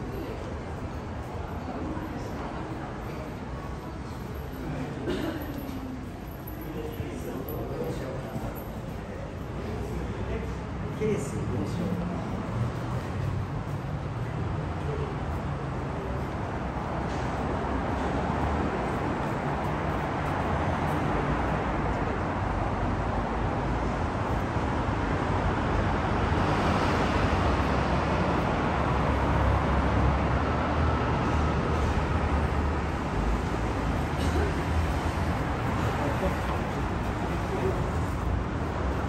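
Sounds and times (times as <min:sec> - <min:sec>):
road traffic rumble: 0:00.0 - 0:39.0.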